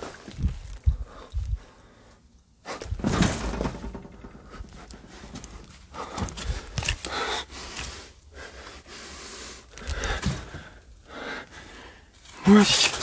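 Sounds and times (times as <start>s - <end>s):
person breathing noisily: 4.4s - 12.2s.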